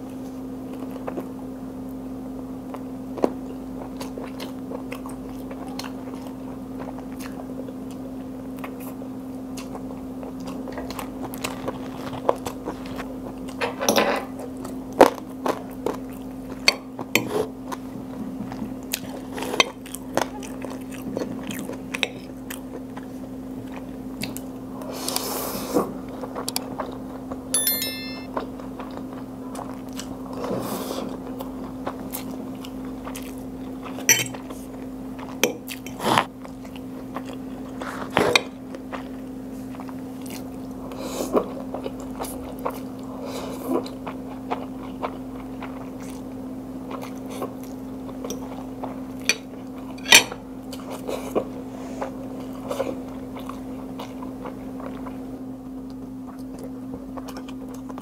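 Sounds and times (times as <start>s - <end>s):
person chewing noodles: 18.9s - 24.5s, 31.6s - 50.0s, 50.6s - 55.3s, 55.9s - 58.0s.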